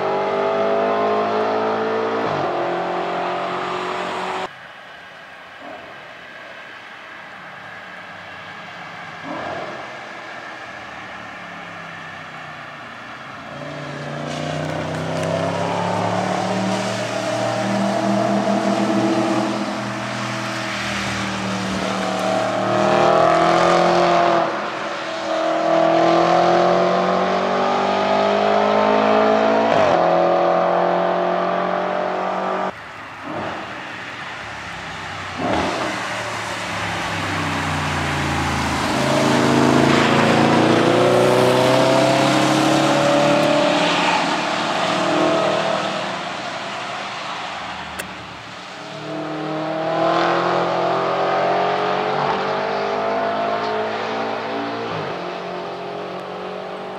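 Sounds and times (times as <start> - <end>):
car engine revving past: 13.5 - 33.9, 34.8 - 56.9.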